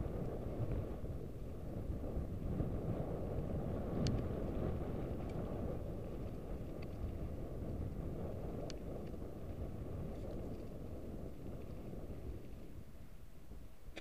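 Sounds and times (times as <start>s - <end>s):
wind rumbling on microphone: 0.0s - 14.0s
bike clicks: 2.9s - 12.7s.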